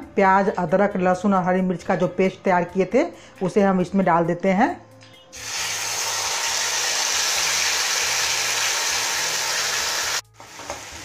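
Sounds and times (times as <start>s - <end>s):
paste sizzling in hot oil: 5.4s - 11.0s.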